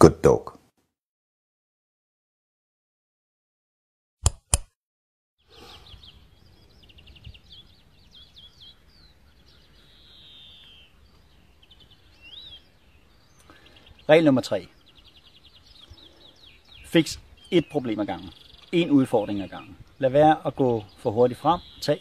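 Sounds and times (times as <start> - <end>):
mouse clicks: 4.2 - 4.7
songbirds chirping and trilling: 5.4 - 22.0.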